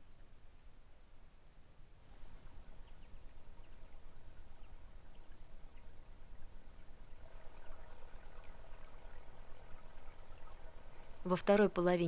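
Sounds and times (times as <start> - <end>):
outdoor ambient noise: 0.0 - 12.0
faint ticks: 2.2 - 11.3.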